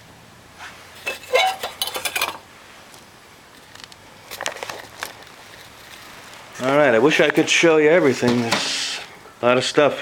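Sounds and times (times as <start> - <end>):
glass scraping on concrete: 1.0 - 2.4.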